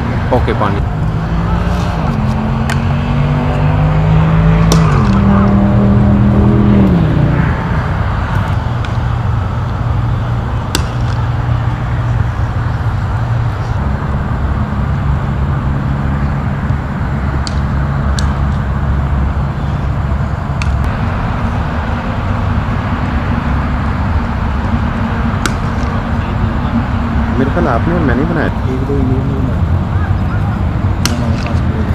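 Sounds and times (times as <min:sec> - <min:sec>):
low engine-like rumble: 0:00.0 - 0:31.9
cricket bat striking ball: 0:04.6 - 0:05.6, 0:10.6 - 0:11.7, 0:25.4 - 0:26.0, 0:31.0 - 0:31.7.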